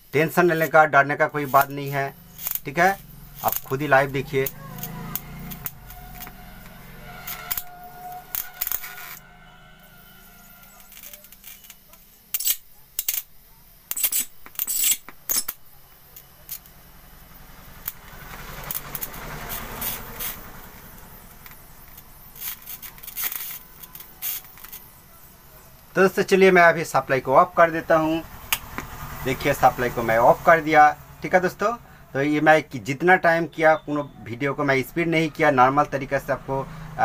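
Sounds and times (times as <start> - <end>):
high-voltage spark snaps: 0.0 - 9.2, 10.5 - 25.0, 27.9 - 29.6.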